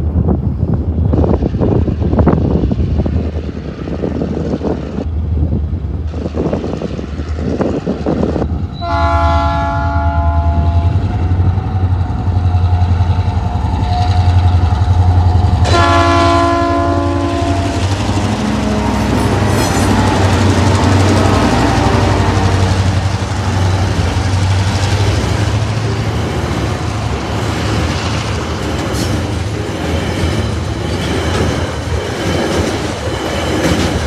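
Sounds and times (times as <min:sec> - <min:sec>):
diesel locomotive engines droning: 0:00.0 - 0:34.0
multi-note train horn: 0:08.8 - 0:11.2, 0:15.6 - 0:23.0.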